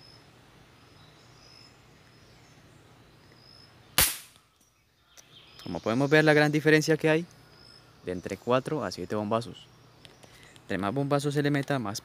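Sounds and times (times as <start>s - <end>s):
faint outdoor background: 0.0s - 12.0s
air rifle shot: 4.0s - 4.4s.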